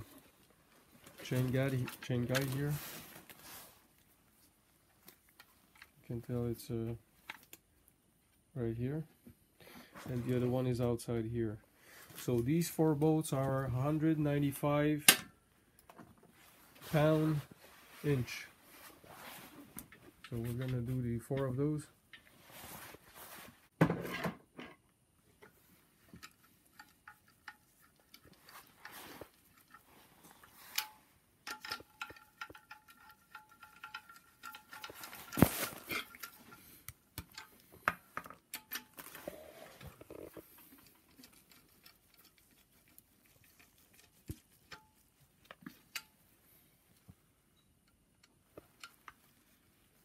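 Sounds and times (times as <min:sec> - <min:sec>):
ratchet and bolts clicking: 0:30.7 - 0:35.5.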